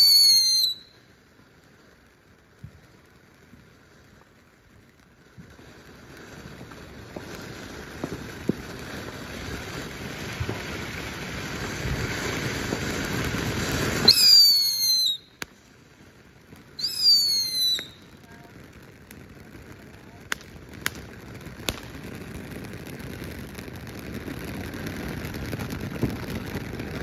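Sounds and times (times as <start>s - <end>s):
shrill firework whistle: 0.0s - 1.0s, 13.7s - 15.5s, 16.7s - 18.5s
firework hissing and crackling: 0.0s - 27.0s.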